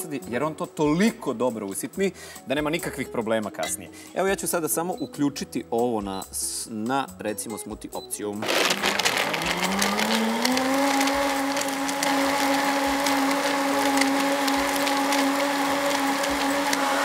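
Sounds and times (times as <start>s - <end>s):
blender motor whining: 8.4s - 17.0s.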